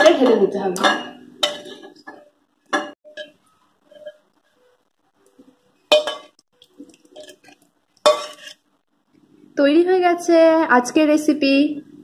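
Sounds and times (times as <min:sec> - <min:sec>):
utensil clinking on pan: 0:00.8 - 0:04.2, 0:05.9 - 0:06.4, 0:07.1 - 0:08.6
spoon scraping pan: 0:00.8 - 0:04.8, 0:05.4 - 0:08.8.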